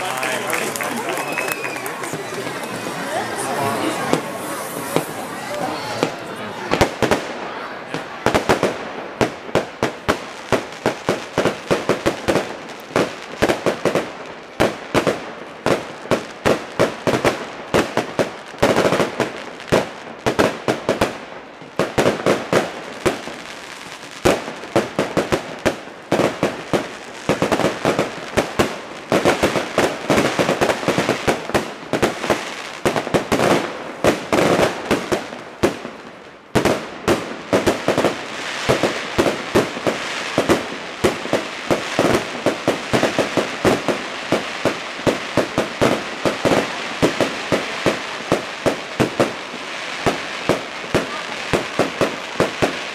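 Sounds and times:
fireworks bursting: 0:00.0 - 0:52.9.

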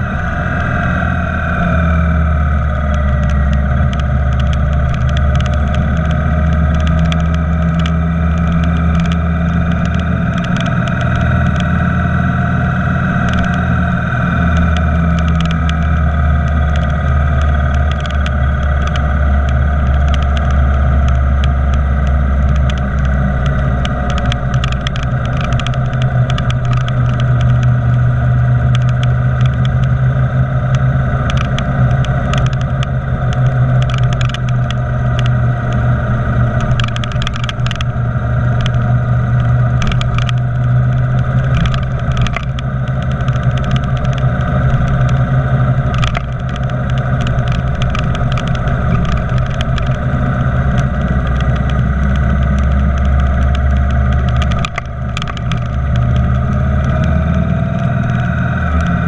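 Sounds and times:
motorcycle engine running: 0:00.0 - 0:59.0
wind and road noise: 0:00.0 - 0:59.0.

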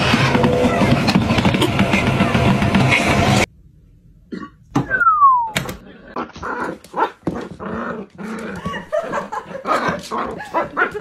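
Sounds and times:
short falling whistle-like tone: 0:04.9 - 0:05.6.

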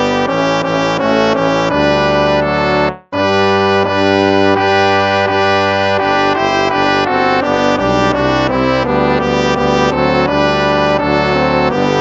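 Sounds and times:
brass hymn music: 0:00.0 - 0:12.0.

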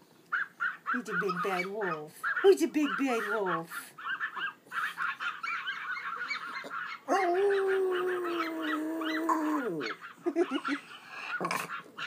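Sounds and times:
dog howling: 0:05.2 - 0:10.2.

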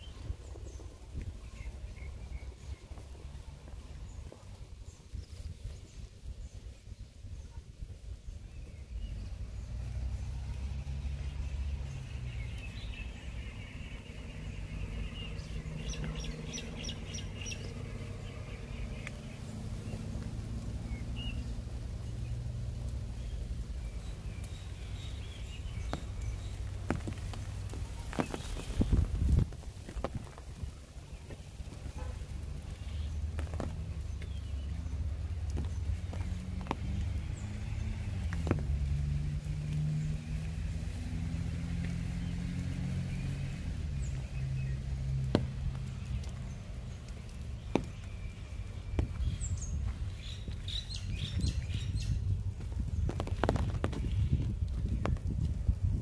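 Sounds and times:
footsteps on wet brick path: 0:00.0 - 0:56.0
light taps: 0:45.2 - 0:50.6.

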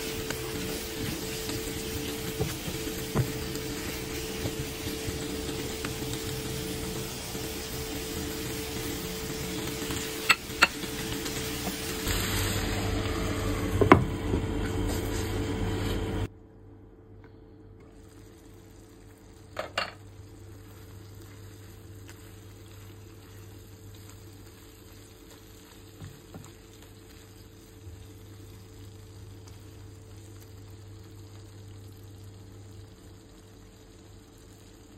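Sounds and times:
food sizzling in a frying pan: 0:00.0 - 0:16.3, 0:18.0 - 0:34.9.

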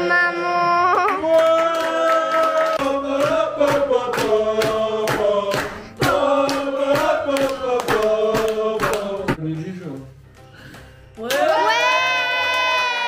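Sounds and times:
group singing a birthday song: 0:00.0 - 0:09.4
people clapping in time: 0:00.9 - 0:09.4, 0:11.2 - 0:13.0.

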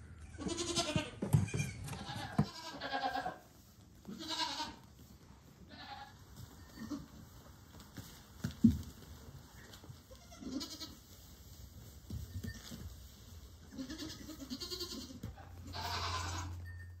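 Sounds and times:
goat kids bleating: 0:00.2 - 0:04.9, 0:05.6 - 0:07.2, 0:09.6 - 0:11.1, 0:13.6 - 0:16.7.

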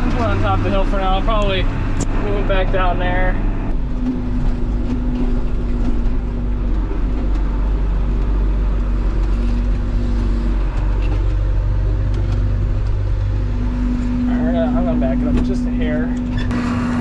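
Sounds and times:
high droning tone: 0:00.0 - 0:17.0
tractor engine running: 0:00.0 - 0:17.0.

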